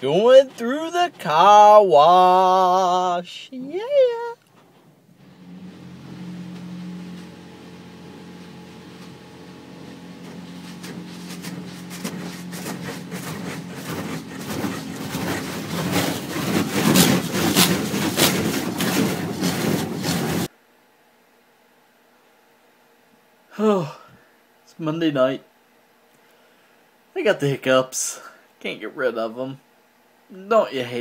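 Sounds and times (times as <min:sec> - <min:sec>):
steady low hum: 0:00.0 - 0:31.0
water spray hitting car: 0:06.3 - 0:20.5.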